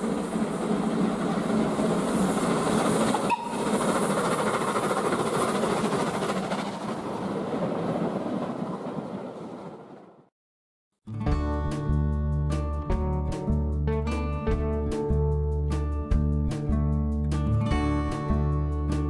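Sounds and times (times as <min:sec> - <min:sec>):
train wheels clattering on rails: 0:00.0 - 0:09.5.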